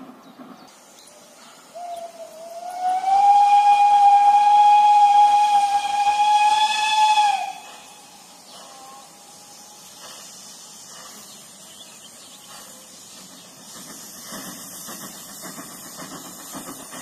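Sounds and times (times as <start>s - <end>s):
steam locomotive whistle: 1.7s - 9.3s.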